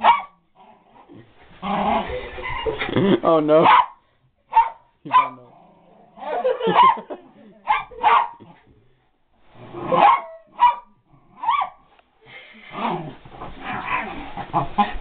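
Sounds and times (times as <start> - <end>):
dog barking and yipping: 0.0 - 0.4, 3.6 - 5.4, 6.2 - 8.4, 9.9 - 11.9.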